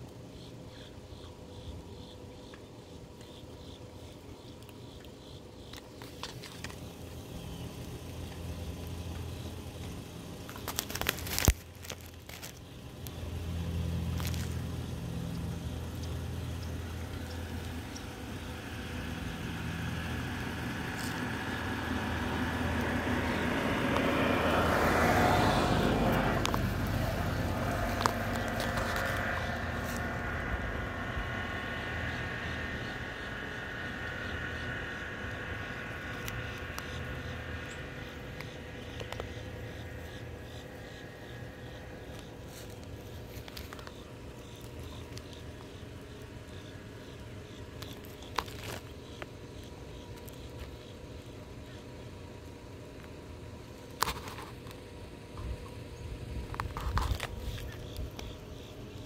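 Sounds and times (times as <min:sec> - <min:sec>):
motor vehicle engine passing: 0:06.6 - 0:47.6.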